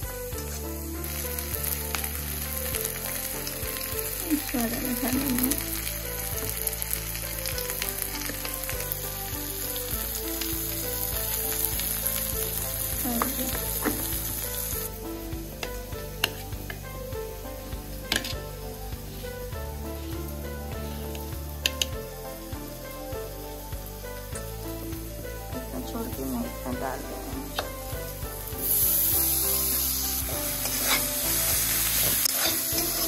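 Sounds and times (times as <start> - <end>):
onions sizzling in hot oil: 0.0 - 33.0
metal spatula scraping pan: 30.5 - 33.0.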